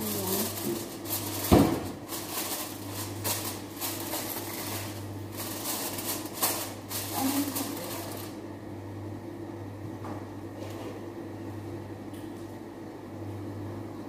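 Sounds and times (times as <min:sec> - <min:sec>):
aluminium foil crinkling: 0:00.0 - 0:08.4.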